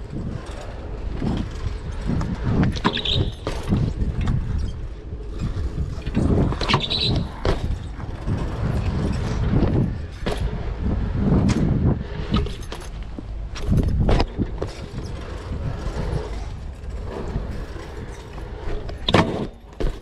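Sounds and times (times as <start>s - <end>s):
wind on microphone: 0.0s - 19.1s
tyres rolling on concrete: 0.0s - 20.0s
bike knocks and clicks: 0.2s - 4.8s, 5.8s - 8.1s, 11.2s - 15.2s, 18.9s - 20.0s
high squeaks: 2.8s - 3.8s, 6.2s - 7.8s.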